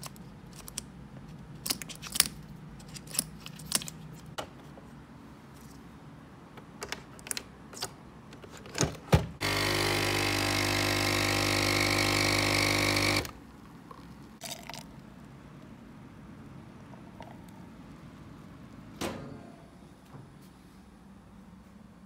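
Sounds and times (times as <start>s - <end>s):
small electric appliance humming: 9.4s - 13.4s.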